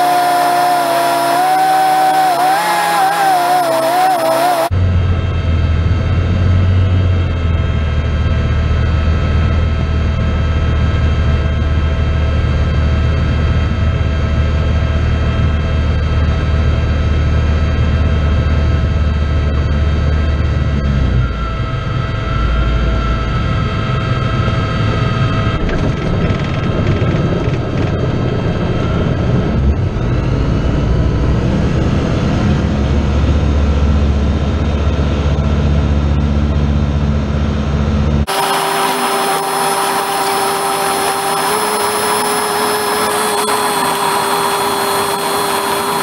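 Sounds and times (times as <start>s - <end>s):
propeller engine running in cockpit: 0.0s - 46.0s
steady higher hums: 38.2s - 46.0s.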